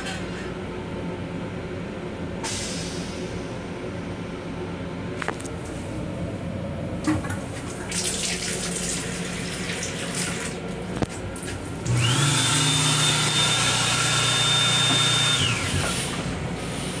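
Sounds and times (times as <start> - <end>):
faucet water running into sink: 7.7 - 10.6
motor whining and humming: 11.8 - 16.8.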